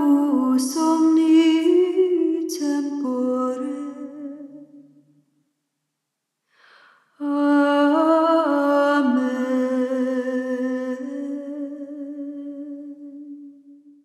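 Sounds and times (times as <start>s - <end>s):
woman chanting: 0.0s - 4.8s, 7.2s - 13.7s
intake of breath: 6.4s - 7.2s.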